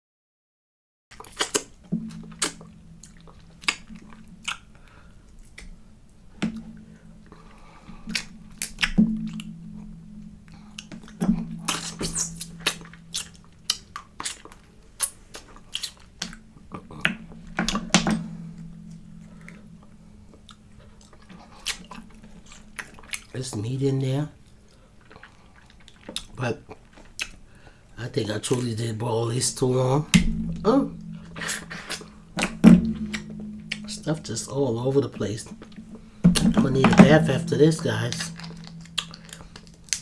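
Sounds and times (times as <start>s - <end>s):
chewing and mouth smacking: 1.1s - 5.8s, 10.5s - 17.2s, 20.4s - 23.4s, 24.4s - 27.4s
crab shell cracking: 1.1s - 5.8s, 37.5s - 40.0s.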